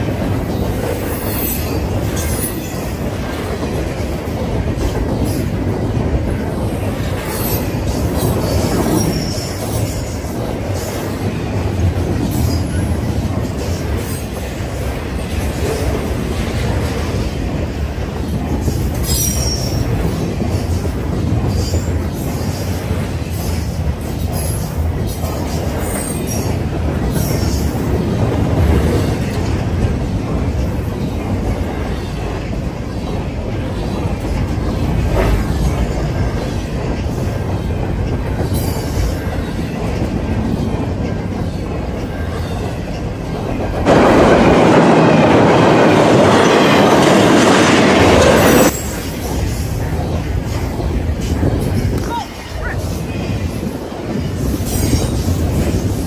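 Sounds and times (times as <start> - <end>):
steel wheels rumbling on rails: 0.0 - 56.0
wheel squeal: 7.3 - 10.2, 19.0 - 20.0.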